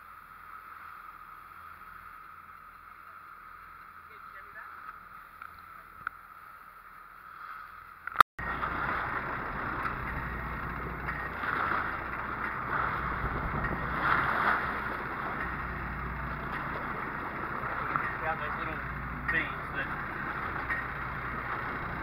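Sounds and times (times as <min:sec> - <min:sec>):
water noise: 0:00.0 - 0:22.0
wind: 0:00.0 - 0:22.0
low engine rumble: 0:08.0 - 0:22.0.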